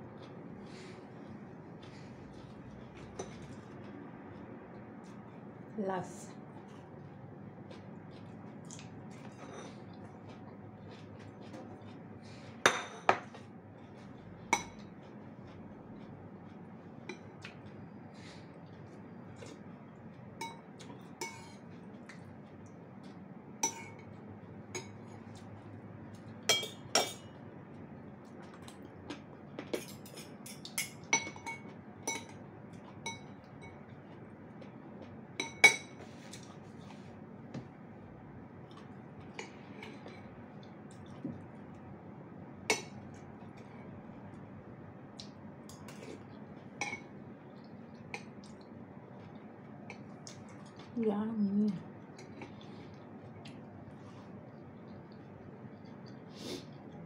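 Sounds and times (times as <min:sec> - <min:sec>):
utensils clinking against dishes: 0:20.4 - 0:21.6, 0:26.5 - 0:27.4, 0:29.6 - 0:33.9.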